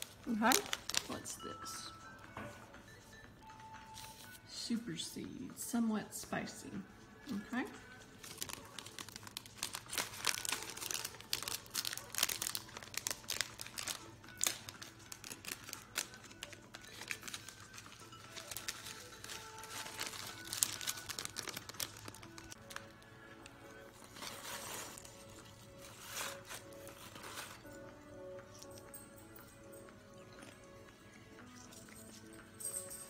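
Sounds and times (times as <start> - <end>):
plastic packaging crinkling: 0.0 - 1.4, 8.0 - 27.8
faint music: 0.0 - 33.0.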